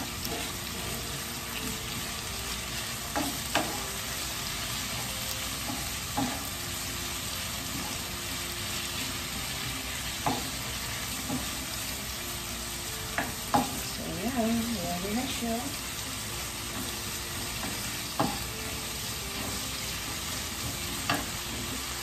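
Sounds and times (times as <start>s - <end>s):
vegetables sizzling in a frying pan: 0.0s - 22.0s
wooden spoon knocking on pan: 10.2s - 10.6s, 17.6s - 18.5s.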